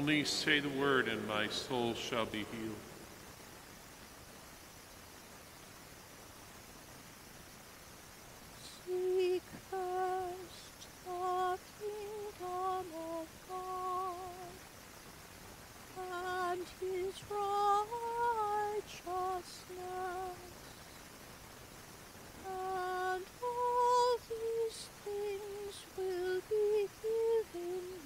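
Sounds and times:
woman singing a hymn: 0:08.6 - 0:14.6, 0:15.9 - 0:20.9, 0:22.4 - 0:28.0.

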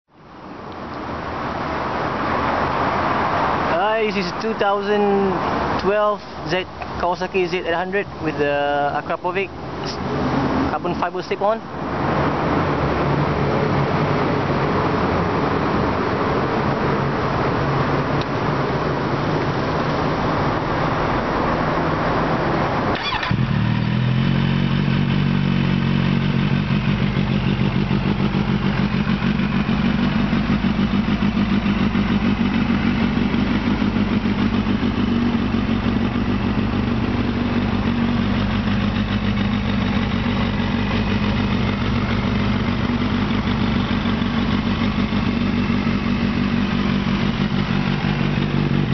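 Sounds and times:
motorcycle engine idling: 0:23.0 - 0:48.9.

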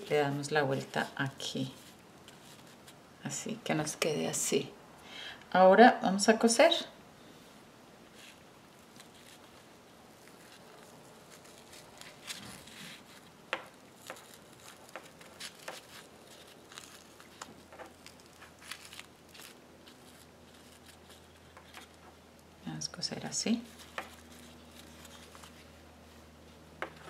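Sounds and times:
fabric rustling: 0:00.0 - 0:03.1, 0:07.3 - 0:22.2, 0:23.6 - 0:27.0.

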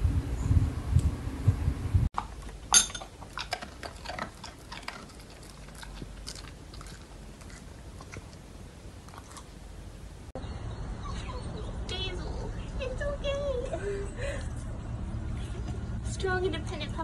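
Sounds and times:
dog chewing food: 0:02.2 - 0:09.6.

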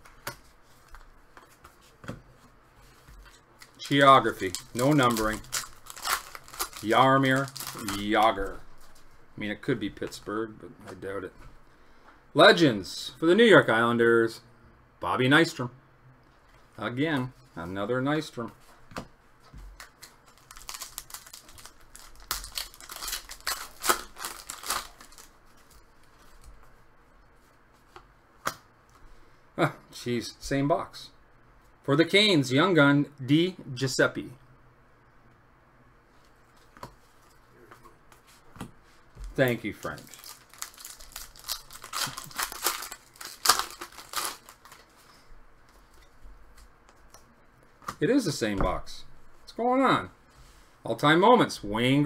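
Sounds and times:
foil wrapper tearing and crinkling: 0:03.7 - 0:08.3, 0:19.8 - 0:25.8, 0:39.8 - 0:44.9.

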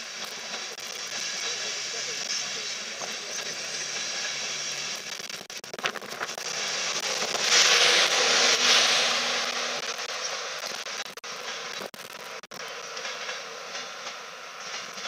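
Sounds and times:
train rushing hiss: 0:00.0 - 0:05.1, 0:06.4 - 0:10.6
wheels clicking on track: 0:00.0 - 0:15.0.

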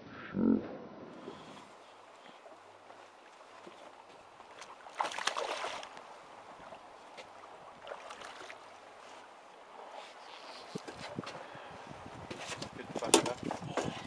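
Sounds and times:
fish splashing at water surface: 0:04.7 - 0:06.0.

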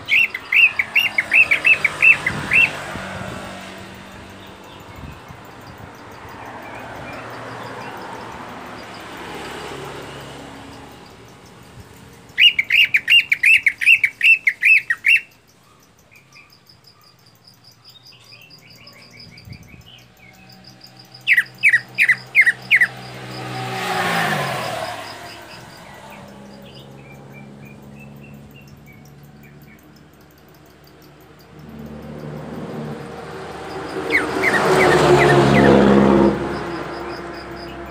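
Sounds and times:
soft bird chirps: 0:00.0 - 0:02.9, 0:10.8 - 0:23.7
motor vehicle passing: 0:00.0 - 0:15.3, 0:18.4 - 0:37.9
bird singing rapid notes: 0:00.0 - 0:37.9.

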